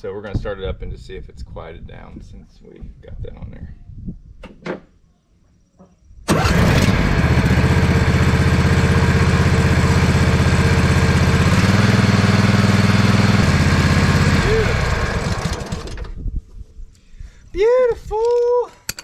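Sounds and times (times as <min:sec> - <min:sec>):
mower engine starting and running: 0:06.3 - 0:16.2.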